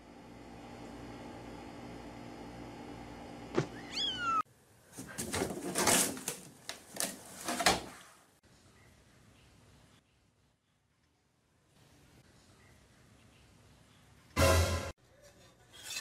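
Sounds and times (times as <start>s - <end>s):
kitten meowing: 3.7s - 4.4s
cat scrambling in wooden hamper: 5.0s - 8.0s.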